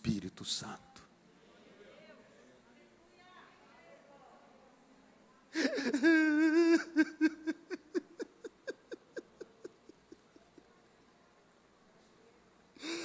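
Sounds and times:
man weeping and sobbing: 5.6 - 10.8.

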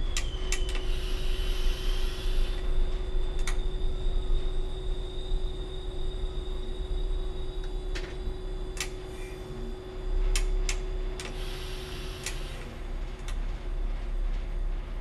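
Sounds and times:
steady hum: 0.0 - 15.0
train low running rumble: 0.0 - 15.0
sharp clicks and ticks: 10.3 - 11.4.

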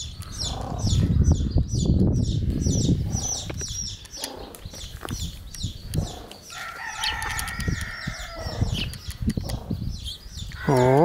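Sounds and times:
baby chicks peeping: 0.0 - 11.0
rooster crowing: 6.5 - 8.8.

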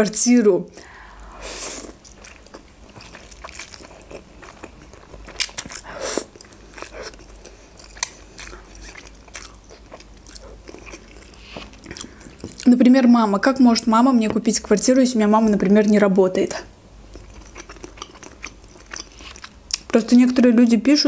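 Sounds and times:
chewing with wet clicks: 2.0 - 12.7, 17.1 - 20.0.

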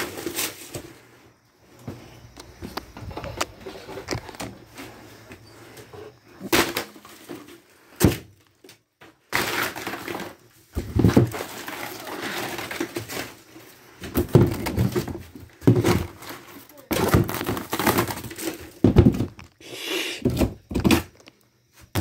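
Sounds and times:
wood board cracking and splintering: 9.3 - 13.4, 14.2 - 19.4.

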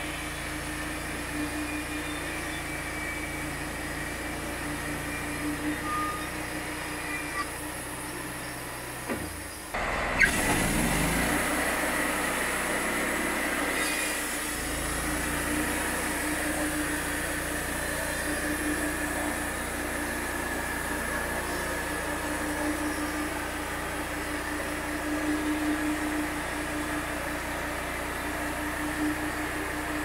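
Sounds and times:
bandsaw sawing a log: 10.3 - 30.0.

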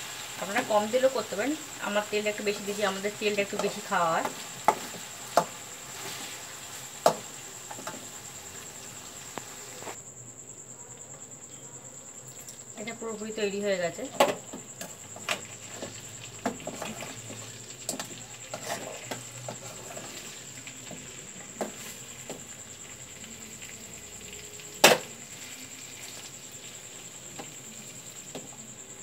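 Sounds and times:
oil sizzling: 0.0 - 10.0, 12.3 - 29.0
spatula scraping in a pan: 0.0 - 10.0, 14.3 - 23.8.

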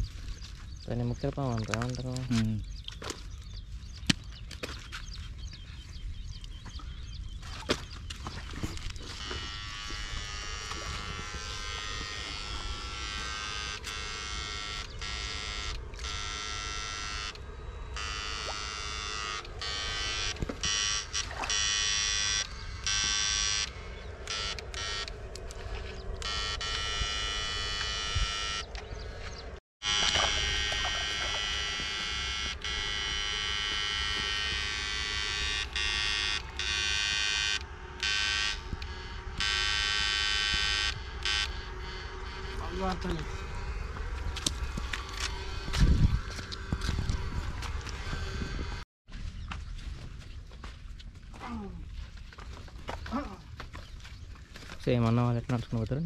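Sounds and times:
electrical buzz: 8.4 - 48.9.

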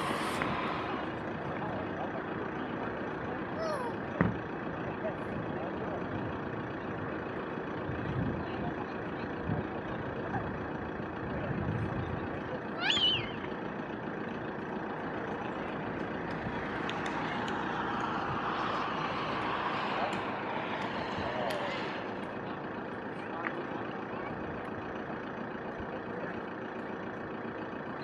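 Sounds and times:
faint distant voices: 0.0 - 28.0
high wavering cry: 12.8 - 13.4.

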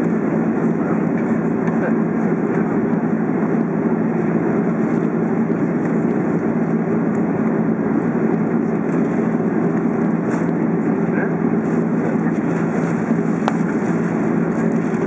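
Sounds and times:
jet engines and airflow rushing: 0.0 - 15.0.

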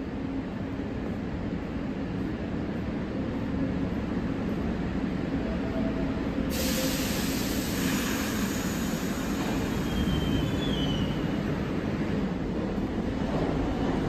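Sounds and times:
subway train rumbling: 0.0 - 14.0
hiss: 6.5 - 11.2
high wheel squeal: 9.5 - 11.3.

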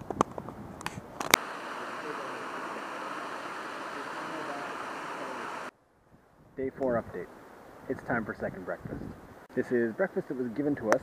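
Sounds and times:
waterfall rushing into pool: 1.4 - 5.7.

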